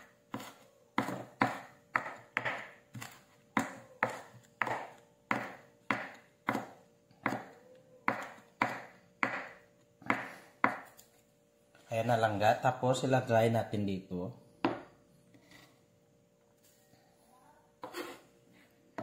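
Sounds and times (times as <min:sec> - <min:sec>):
knife chopping on wooden board: 0:00.3 - 0:11.0.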